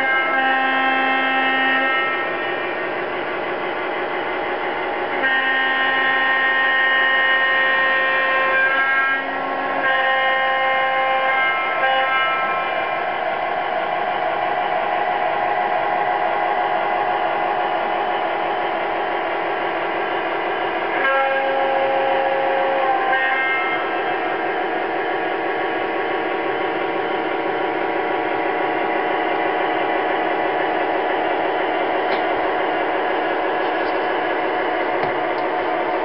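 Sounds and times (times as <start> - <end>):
model train horn blasts: 0.0 - 2.8, 5.2 - 12.9, 20.9 - 24.1.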